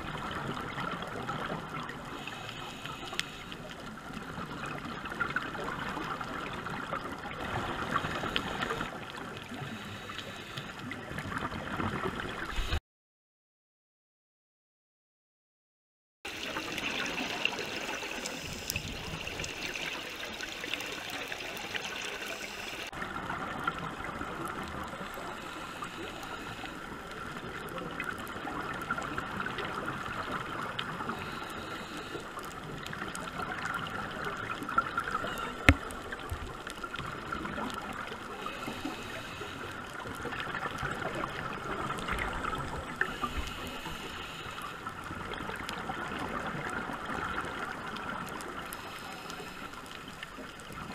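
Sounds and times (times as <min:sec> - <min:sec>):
faint underwater clicks: 0:00.2 - 0:12.8, 0:16.3 - 0:50.9
underwater watery hiss: 0:01.8 - 0:03.9, 0:07.5 - 0:11.0, 0:16.3 - 0:23.0, 0:24.9 - 0:27.8, 0:28.9 - 0:36.2, 0:36.8 - 0:45.6, 0:46.4 - 0:50.8.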